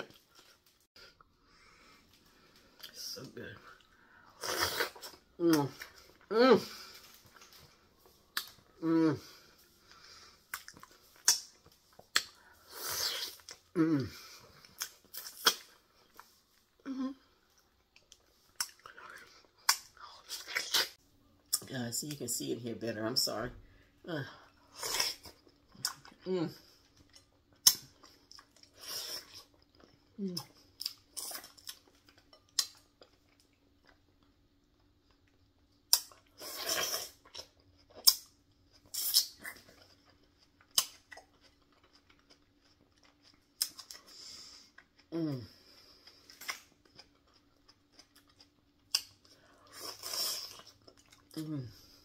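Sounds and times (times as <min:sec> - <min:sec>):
person chewing wet food: 0:03.6 - 0:21.6, 0:24.4 - 0:52.0
person humming mm: 0:08.8 - 0:09.4, 0:13.7 - 0:14.2, 0:16.8 - 0:17.3, 0:26.2 - 0:26.6, 0:45.1 - 0:45.6, 0:51.4 - 0:52.0.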